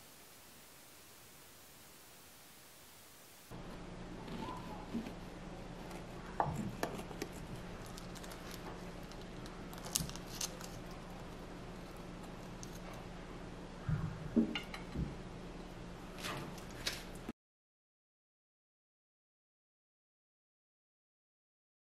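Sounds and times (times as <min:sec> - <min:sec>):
faint low hum: 0:00.0 - 0:17.3.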